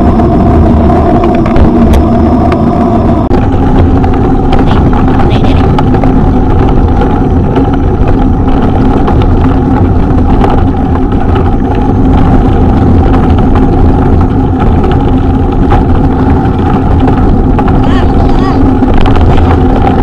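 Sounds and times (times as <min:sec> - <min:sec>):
off-road vehicle engine running: 0:00.0 - 0:20.0.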